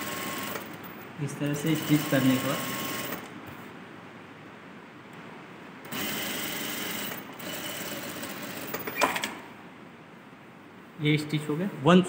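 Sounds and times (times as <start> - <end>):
sewing machine stitching: 0.0 - 0.8, 1.6 - 3.3, 5.9 - 9.3.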